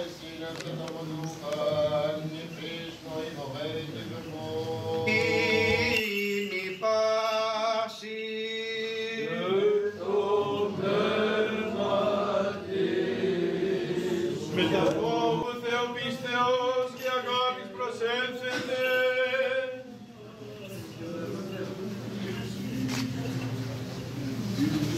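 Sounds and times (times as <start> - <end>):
choir chanting: 1.2 - 6.2, 8.3 - 16.5.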